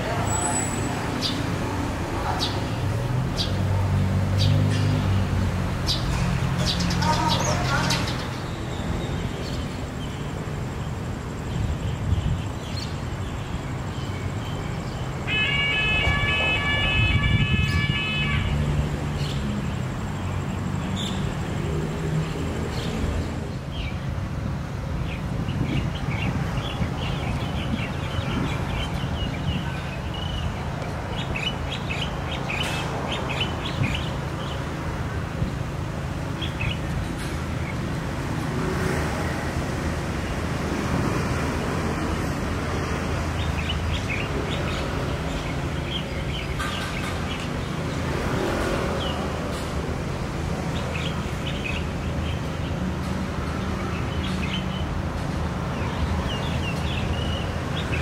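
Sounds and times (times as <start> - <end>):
small birds chirping: 0.0 - 15.2.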